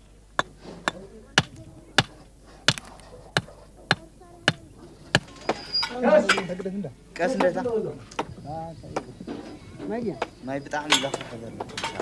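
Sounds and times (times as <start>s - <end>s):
faint voices murmuring: 0.5s - 12.0s.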